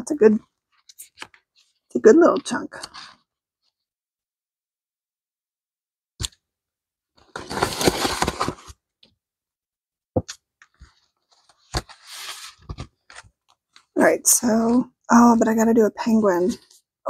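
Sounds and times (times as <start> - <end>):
plastic sleeve and paper crinkling: 0.7 - 3.8, 7.2 - 8.8.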